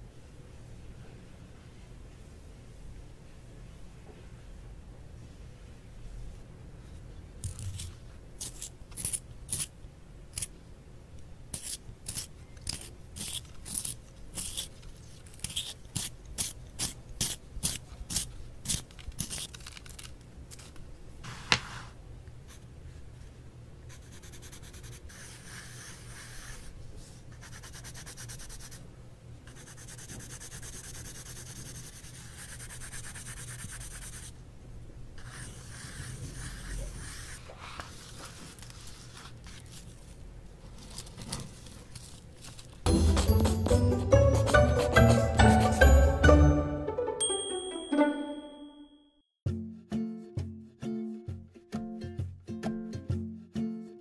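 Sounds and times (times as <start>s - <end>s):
pencil scratching on paper: 23.9s - 26.7s, 29.5s - 34.3s, 35.2s - 38.2s.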